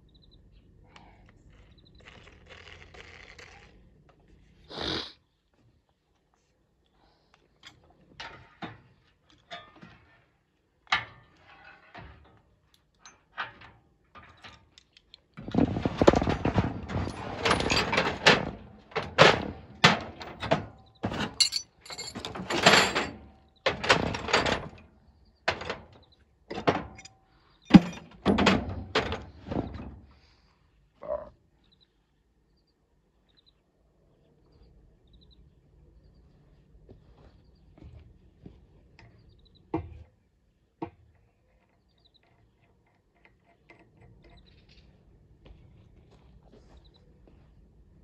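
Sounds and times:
tools clattering on workbench: 0:15.5 - 0:24.8, 0:27.7 - 0:29.9.

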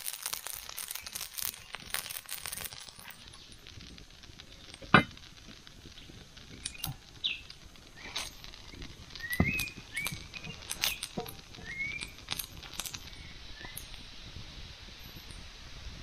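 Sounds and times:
sharp clank: 0:04.8 - 0:05.2.

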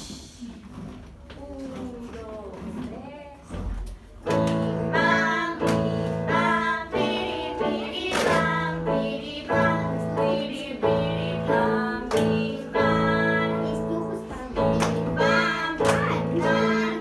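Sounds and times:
children and woman singing: 0:04.3 - 0:17.0.

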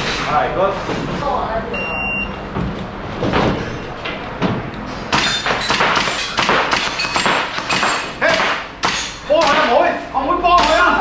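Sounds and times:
airsoft rifle shots: 0:05.1 - 0:09.8.

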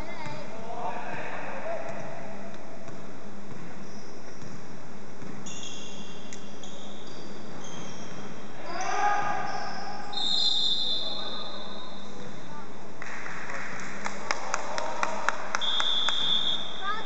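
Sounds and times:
hubbub of large hall: 0:00.0 - 0:17.0
sneakers squeaking on hardwood: 0:03.5 - 0:10.5.

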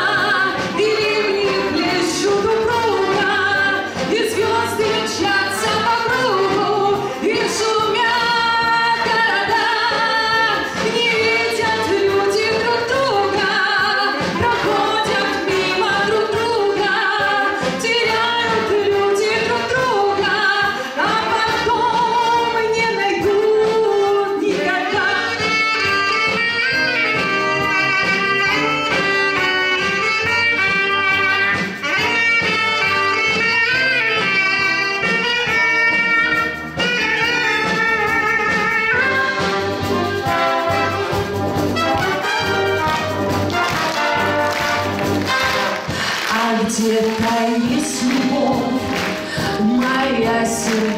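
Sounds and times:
woman singing: 0:00.0 - 0:27.1, 0:45.6 - 0:50.9
brass band playing: 0:00.0 - 0:50.9
saxophone solo: 0:24.8 - 0:50.9.

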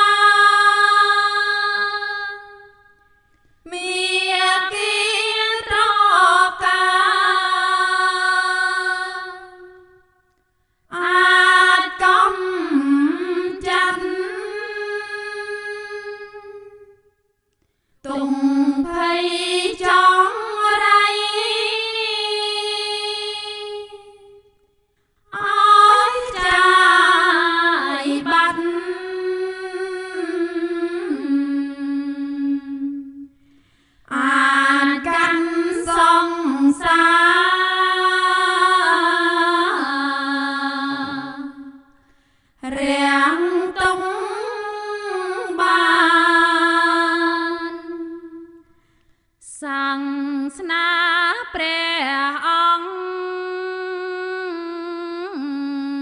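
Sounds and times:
person chanting: 0:10.9 - 0:17.0, 0:18.1 - 0:24.5, 0:25.3 - 0:33.4, 0:34.1 - 0:42.0, 0:42.6 - 0:48.7, 0:49.4 - 0:56.0.

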